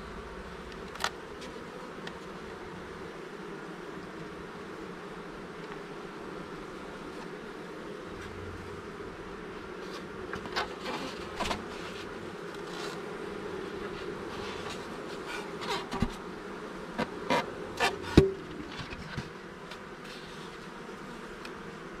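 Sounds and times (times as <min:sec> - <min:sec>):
bees buzzing: 0:00.0 - 0:22.0
hive parts knocking: 0:17.0 - 0:19.8.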